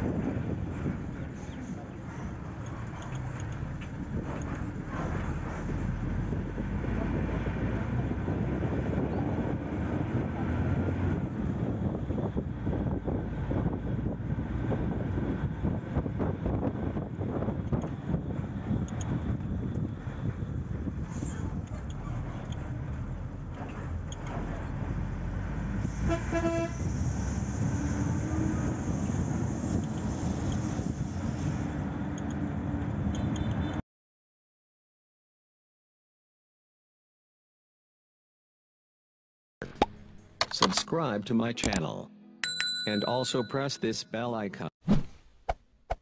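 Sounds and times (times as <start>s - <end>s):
wind buffeting microphone: 0.0s - 26.1s, 26.7s - 33.4s
vehicle rumble: 0.0s - 33.8s
vehicle horn toot: 26.0s - 26.9s.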